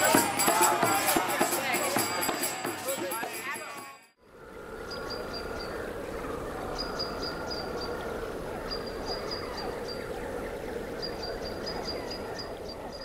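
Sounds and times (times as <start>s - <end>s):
outdoor ambience hum: 4.2s - 13.0s
bird chirping: 4.4s - 13.0s.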